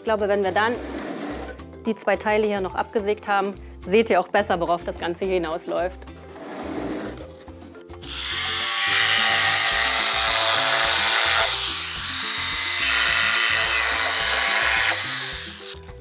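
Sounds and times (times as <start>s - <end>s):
jigsaw cutting wood: 8.0s - 15.8s.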